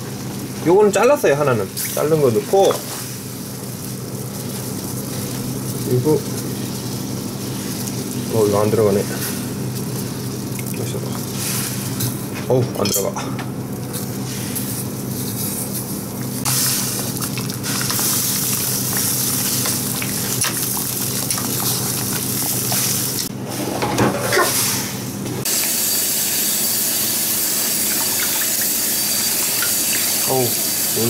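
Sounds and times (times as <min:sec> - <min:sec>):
pot of water boiling: 0:00.0 - 0:12.8, 0:16.0 - 0:23.5, 0:25.4 - 0:31.0
tap sprayer running into pot: 0:25.5 - 0:31.0.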